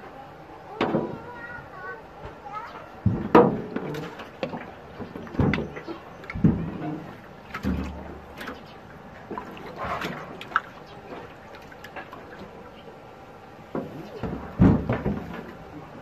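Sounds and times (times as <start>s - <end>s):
fish splashing in shallow water: 3.4s - 15.8s.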